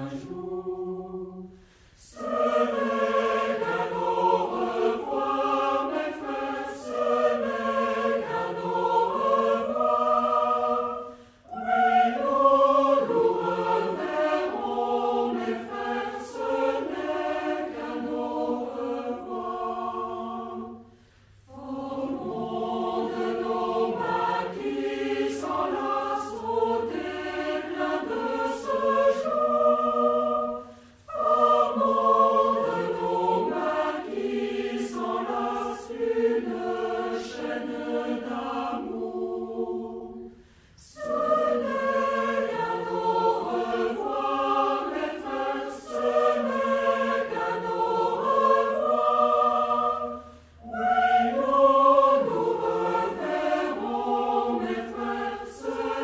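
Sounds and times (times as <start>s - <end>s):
choir singing: 0.0s - 56.0s.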